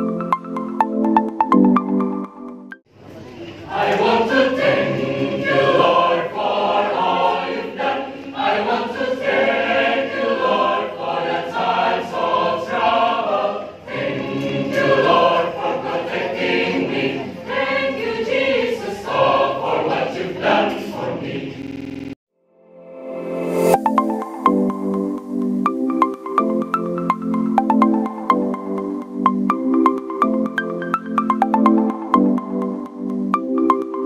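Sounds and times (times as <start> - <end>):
choir singing in harmony: 3.6 - 21.6.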